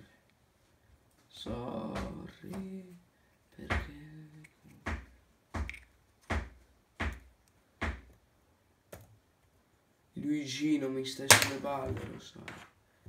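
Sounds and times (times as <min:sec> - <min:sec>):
sharp knocks: 0:04.9 - 0:08.1.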